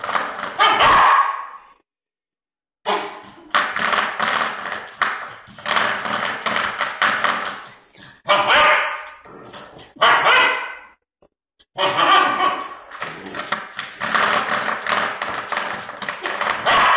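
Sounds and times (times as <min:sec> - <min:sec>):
puppy barking: 0:00.6 - 0:01.7, 0:02.9 - 0:03.2, 0:08.3 - 0:09.2, 0:10.0 - 0:11.0, 0:11.8 - 0:12.8, 0:16.6 - 0:16.9.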